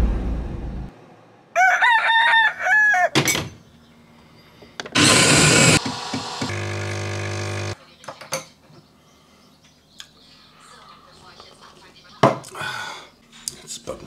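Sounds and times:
rooster crowing: 0:01.5 - 0:03.2
coffee machine buzzing hum: 0:04.9 - 0:07.8
coffee machine hiss: 0:05.0 - 0:07.8.

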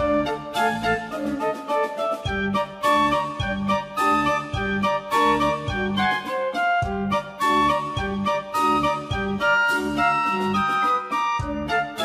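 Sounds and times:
music with held notes and beat: 0:00.0 - 0:12.0.

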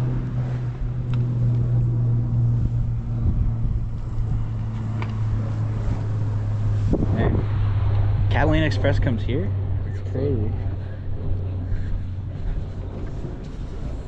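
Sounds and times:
boat engine droning: 0:00.0 - 0:14.0.

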